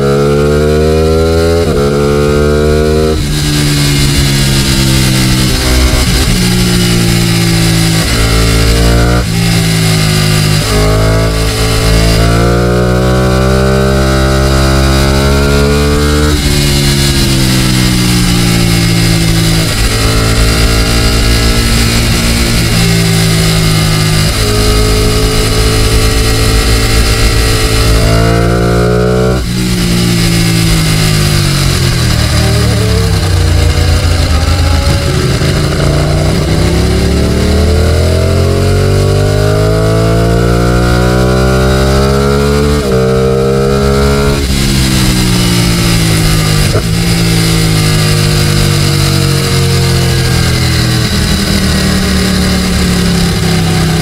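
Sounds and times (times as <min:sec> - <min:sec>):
motorcycle engine accelerating: 0:00.0 - 0:54.0
wind rush: 0:16.3 - 0:39.0.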